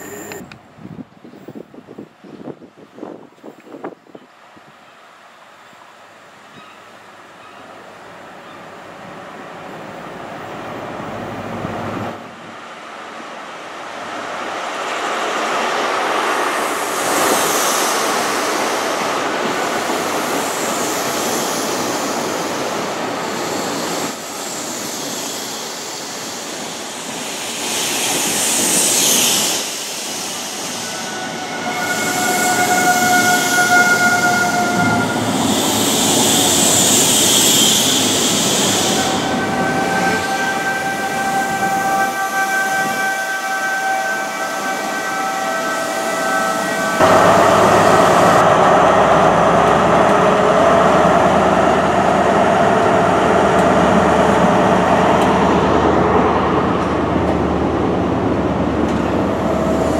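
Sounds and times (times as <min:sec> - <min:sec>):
diesel train engine and wheels: 0:00.0 - 0:59.9
braking wheels squealing: 0:30.2 - 0:43.2.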